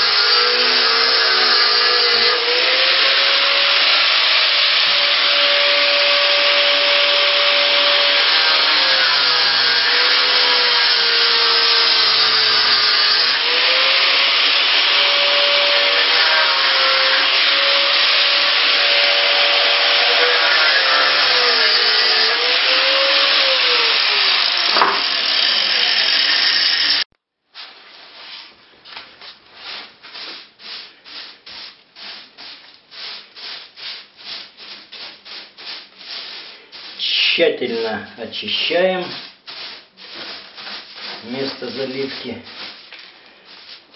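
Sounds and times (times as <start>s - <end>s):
angle grinder grinding: 0.0s - 27.1s, 35.8s - 43.9s
broom sweeping: 27.5s - 43.9s.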